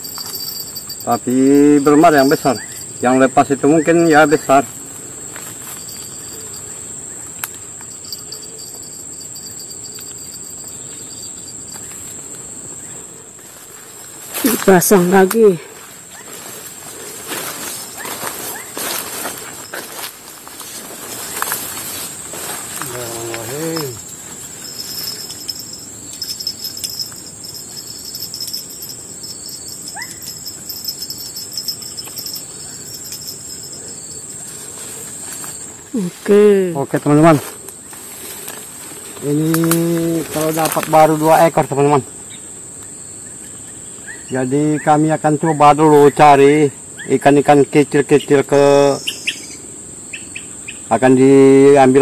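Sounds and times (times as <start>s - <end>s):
faint broken trill: 0.0s - 4.6s, 17.5s - 36.4s
insects chirring drone: 0.0s - 52.0s.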